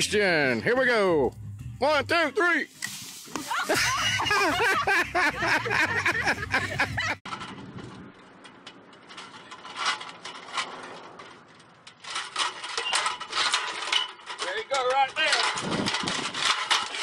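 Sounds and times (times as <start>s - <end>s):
metal ladder clinking and rattling: 3.7s - 17.0s.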